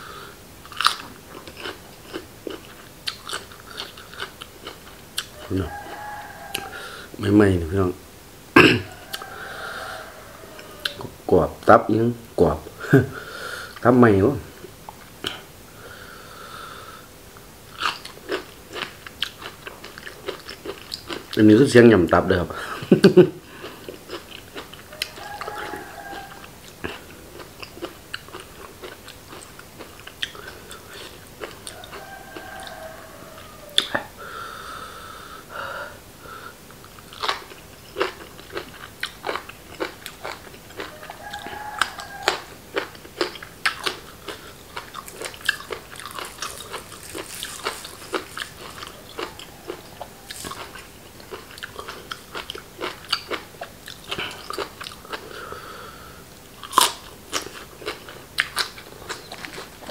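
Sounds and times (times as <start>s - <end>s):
distant roosters crowing: 5.3s - 8.0s, 8.6s - 14.2s, 22.4s - 27.4s, 30.4s - 36.6s, 37.3s - 52.1s
wet chewing and biting: 37.1s - 55.2s, 56.6s - 59.9s.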